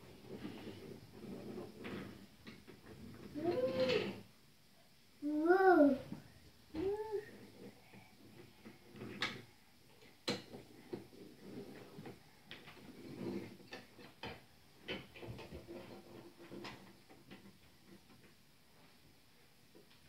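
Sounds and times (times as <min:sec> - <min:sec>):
wooden toy train clacking: 0:00.2 - 0:04.2.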